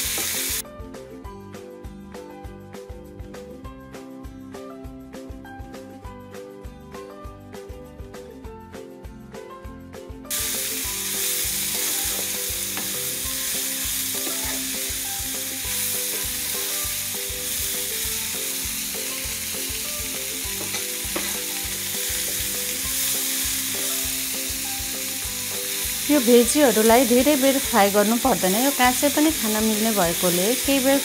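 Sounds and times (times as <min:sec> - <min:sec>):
food sizzling in a hot pan: 0:00.0 - 0:00.6, 0:10.3 - 0:31.0
background music: 0:00.1 - 0:31.0.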